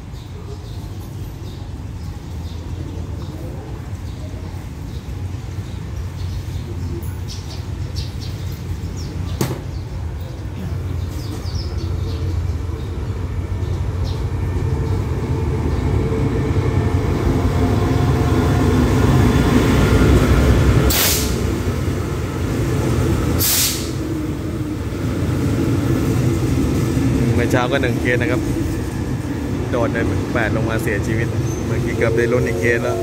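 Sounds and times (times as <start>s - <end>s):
locomotive engine and wheels rumbling: 0.0s - 33.0s
air brake hisses: 20.9s - 21.4s, 23.4s - 24.0s.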